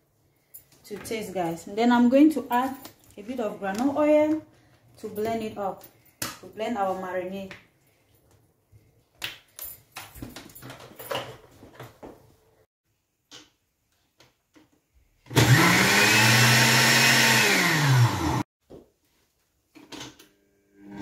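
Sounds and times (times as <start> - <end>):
knocks and clatters of handling: 8.1 - 12.5
blender motor running: 15.3 - 18.5.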